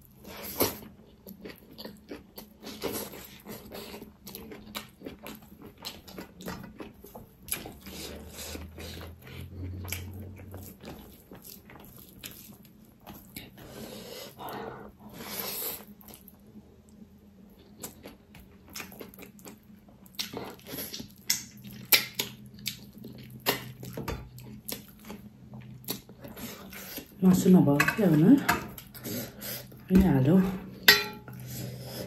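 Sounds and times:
wet chewing and lip smacks: 17.6 - 27.1.

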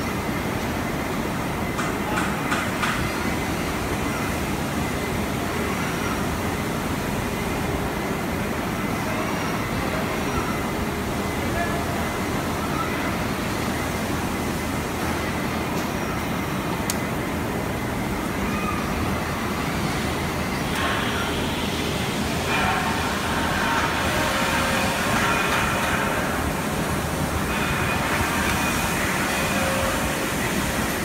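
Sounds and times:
hissing machine noise: 0.0 - 31.0
robot and conveyor running: 17.1 - 31.0.

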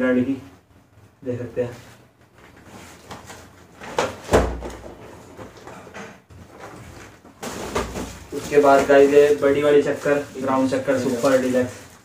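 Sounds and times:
cardboard rustling and scraping: 6.4 - 12.0.

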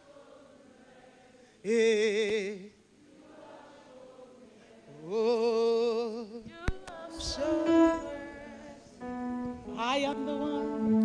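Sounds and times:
congregation singing faintly: 0.0 - 11.0
woman singing long note: 9.5 - 11.0.

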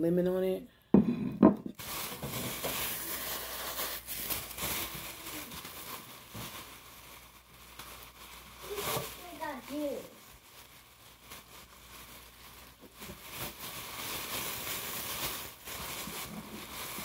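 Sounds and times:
packaging rustling and crinkling: 1.7 - 17.0.

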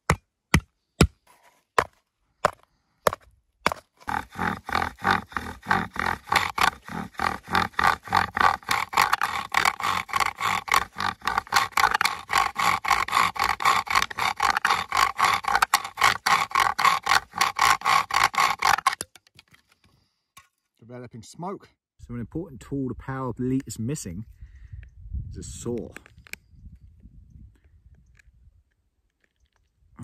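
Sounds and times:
wooden spindle squeaking and grinding: 3.7 - 19.5.

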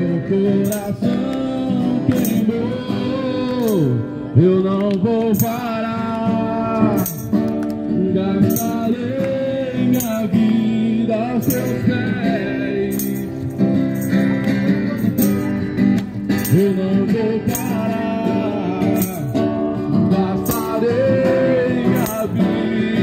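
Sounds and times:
tambourine jingling: 0.0 - 4.1, 5.4 - 6.0, 6.8 - 7.6, 8.3 - 23.0
people singing: 0.0 - 4.5, 8.2 - 13.2, 20.1 - 23.0
acoustic guitar: 0.0 - 23.0.

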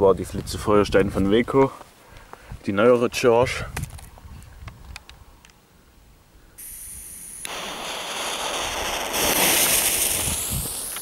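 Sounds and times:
firework fountain hissing: 6.6 - 11.0
firework fuse fizzing: 6.6 - 11.0.

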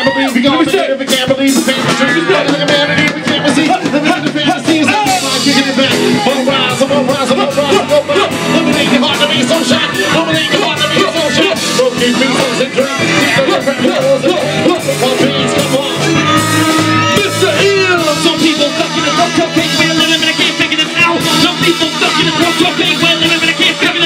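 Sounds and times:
drums: 0.0 - 24.0
guitar: 0.0 - 24.0
person rapping: 0.0 - 24.0
saxophone: 16.0 - 20.2.

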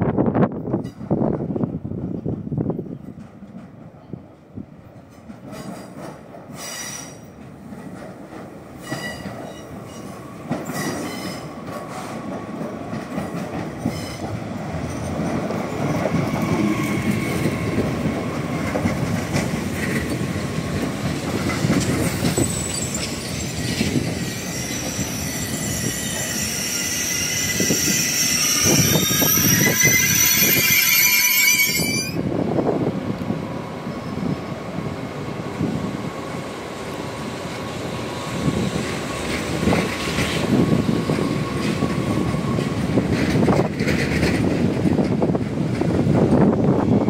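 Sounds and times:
train passing close: 0.0 - 47.0
wheels clicking over rail joints: 4.9 - 24.2, 39.2 - 46.5
high-pitched brake squeal: 6.6 - 7.3, 8.8 - 11.5, 22.3 - 32.2
wheel squeal: 22.3 - 32.2.

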